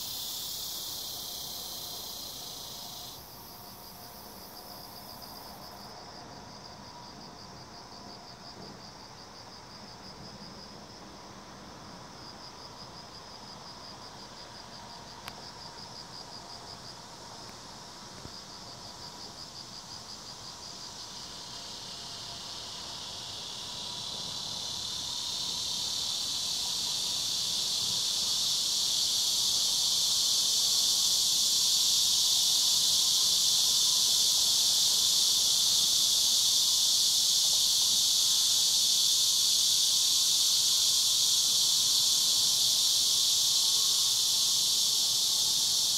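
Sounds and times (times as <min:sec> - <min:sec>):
insect pulsed trill: 0:00.0 - 0:07.9, 0:18.3 - 0:45.9.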